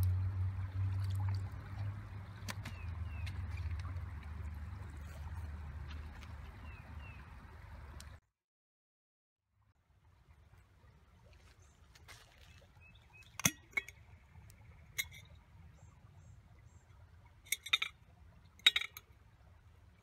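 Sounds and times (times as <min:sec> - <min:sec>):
low steady rumble: 0:00.0 - 0:08.2.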